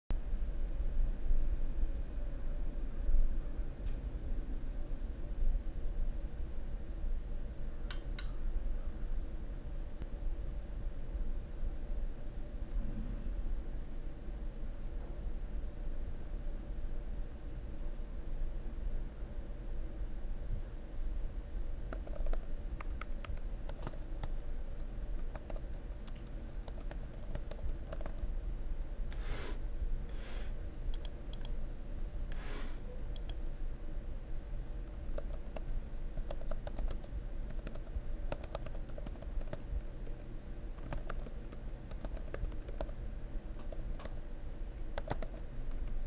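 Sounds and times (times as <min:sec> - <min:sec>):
low steady hum: 0:00.1 - 0:46.0
computer keyboard typing: 0:21.9 - 0:28.3, 0:30.9 - 0:31.6, 0:33.1 - 0:33.4, 0:34.8 - 0:43.0, 0:43.6 - 0:44.2, 0:45.0 - 0:46.0
short hissing sounds: 0:29.1 - 0:30.6, 0:32.3 - 0:32.9.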